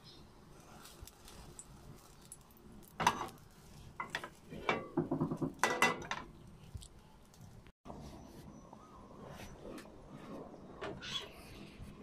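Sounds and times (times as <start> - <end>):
metal cookware clinking: 4.0 - 6.3.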